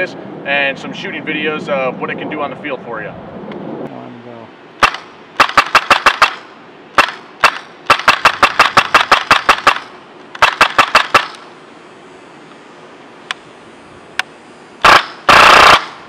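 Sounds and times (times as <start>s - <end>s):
airsoft rifle firing: 4.8s - 11.5s, 14.8s - 16.0s.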